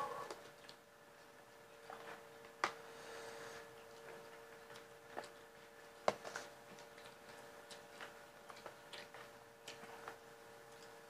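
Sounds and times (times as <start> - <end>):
faint steady hum: 0.0 - 11.0
chewing smacks: 3.7 - 11.0.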